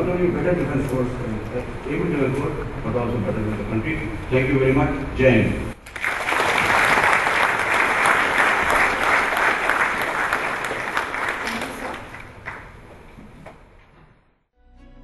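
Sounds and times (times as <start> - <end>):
audience applauding: 5.8 - 13.1.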